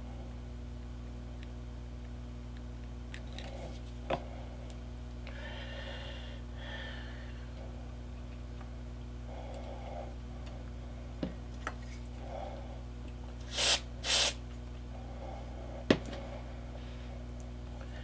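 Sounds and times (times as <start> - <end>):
steady low hum: 0.0 - 18.0
spray can hissing: 13.5 - 14.4.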